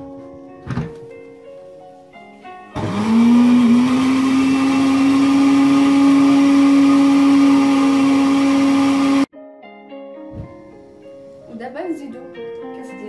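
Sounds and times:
blender motor running: 0:02.8 - 0:09.3.

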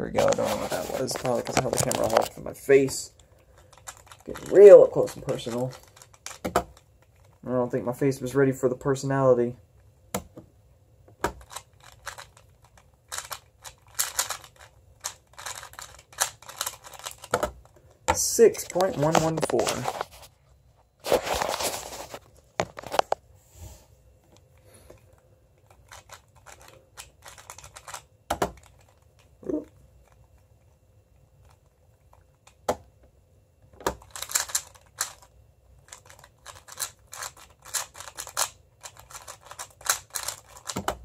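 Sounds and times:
puzzle cube layers clicking: 0:11.3 - 0:17.4, 0:33.9 - 0:35.3, 0:35.9 - 0:41.0.

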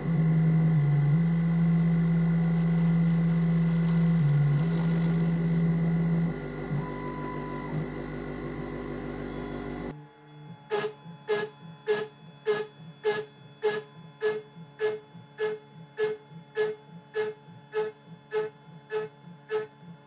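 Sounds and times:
machine humming: 0:00.0 - 0:09.9.

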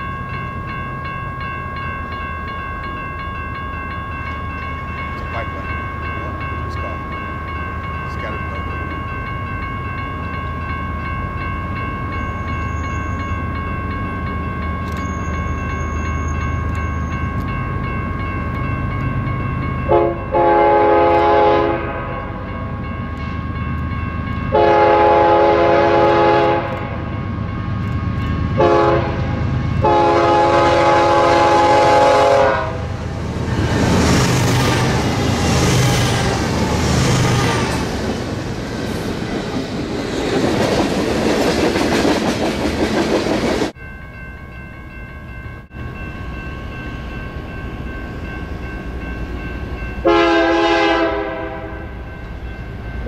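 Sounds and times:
locomotive air horn blasts: 0:19.9 - 0:22.4, 0:24.5 - 0:27.0, 0:28.6 - 0:32.9, 0:50.0 - 0:51.9.

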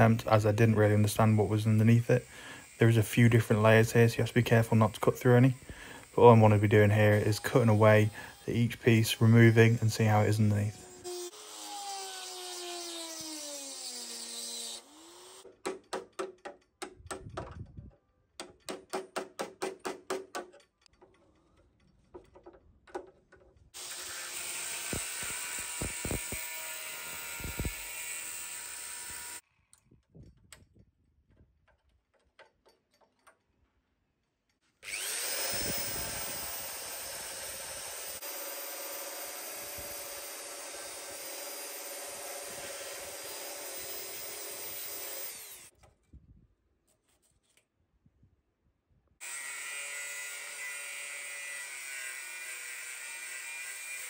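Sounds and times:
cordless power tool cutting steel: 0:00.0 - 0:15.5, 0:23.7 - 0:29.4, 0:34.8 - 0:45.8, 0:49.2 - 0:54.0
power tool spinning up: 0:02.0 - 0:03.9, 0:23.8 - 0:29.4, 0:34.8 - 0:45.7
angle grinder running: 0:02.0 - 0:15.4, 0:23.8 - 0:29.4, 0:34.8 - 0:45.7, 0:49.2 - 0:54.0.

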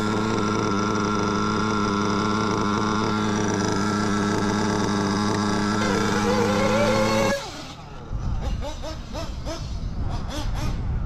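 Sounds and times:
rc car nitro engine idling: 0:00.0 - 0:11.0.

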